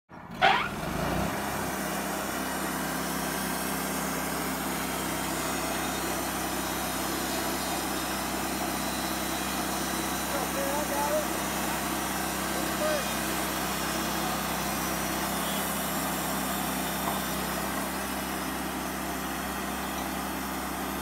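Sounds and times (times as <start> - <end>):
sawmill running: 0.2 - 21.0.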